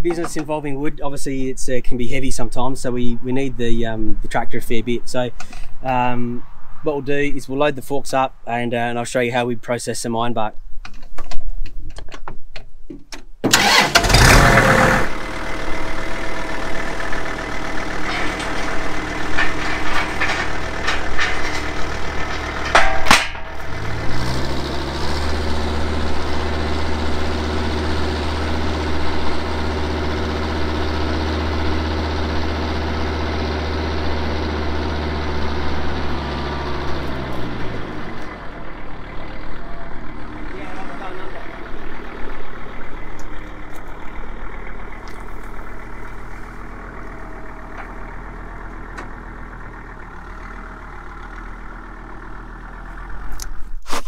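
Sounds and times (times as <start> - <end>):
tractor engine cranking and idling: 0.0 - 7.5, 10.6 - 54.0
tractor engine revving: 13.4 - 54.0.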